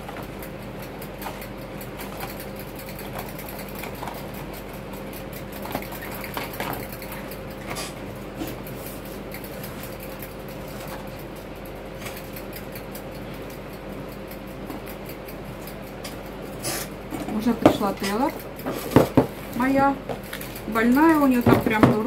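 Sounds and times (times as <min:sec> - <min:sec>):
steady background hum: 0:00.0 - 0:22.0
marker pens tapping on wooden desk: 0:17.6 - 0:19.4, 0:21.4 - 0:22.0.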